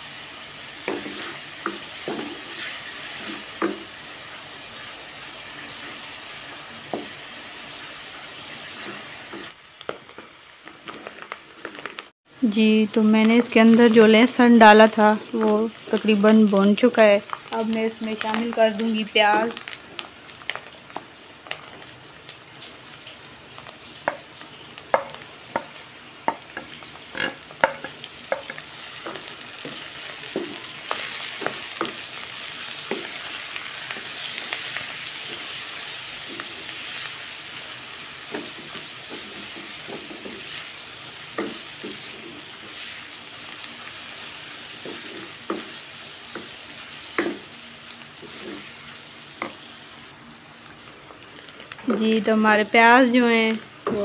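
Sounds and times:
meat and onions sizzling in oil: 0:00.0 - 0:54.0
wooden spoon scraping a pan: 0:00.8 - 0:04.0, 0:08.5 - 0:12.1, 0:24.9 - 0:37.3, 0:37.9 - 0:47.5, 0:48.2 - 0:49.9.

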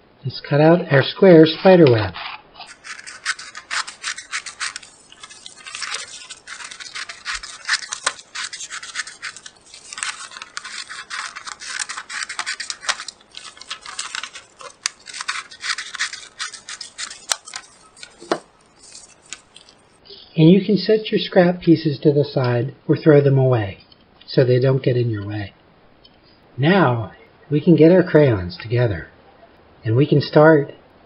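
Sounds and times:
scissors snipping paper: 0:02.6 - 0:19.9.

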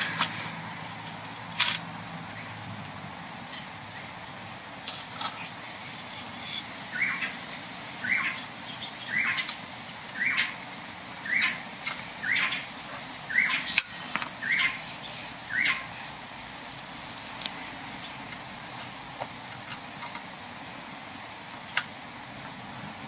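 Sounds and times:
bird chirping: 0:06.9 - 0:07.4, 0:08.0 - 0:09.5, 0:10.2 - 0:10.6, 0:11.2 - 0:11.6, 0:12.2 - 0:12.7, 0:13.3 - 0:15.9.

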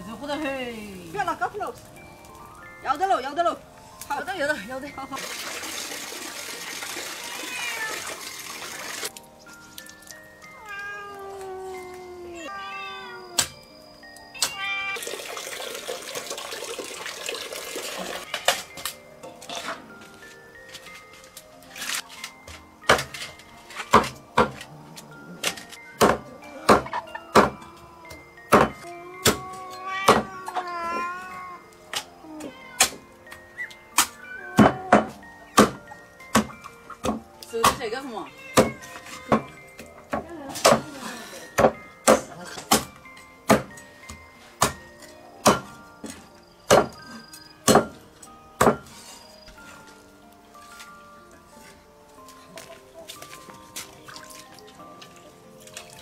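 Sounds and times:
cleaver chopping on wooden block: 0:43.5 - 0:43.7, 0:47.7 - 0:47.9.

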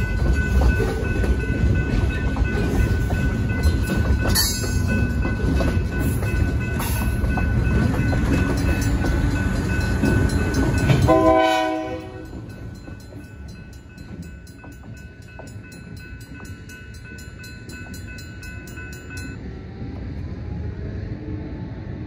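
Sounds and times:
crossing bells ringing: 0:00.0 - 0:19.4
locomotive rumbling past: 0:00.0 - 0:22.0
train horn blast: 0:11.1 - 0:12.3.

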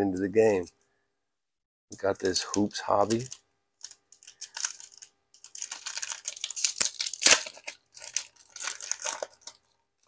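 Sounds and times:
wrapper tearing and crinkling: 0:02.2 - 0:09.7.

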